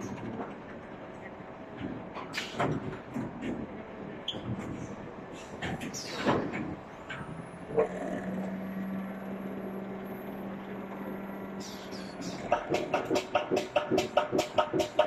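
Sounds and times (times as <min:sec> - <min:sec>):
pneumatic hisses and clacks: 0:01.8 - 0:07.3, 0:11.6 - 0:15.0.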